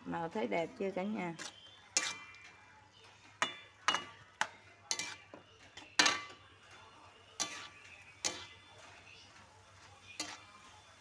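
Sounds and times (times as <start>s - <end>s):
metal spatula scraping a wok: 1.2s - 3.2s, 4.8s - 11.0s.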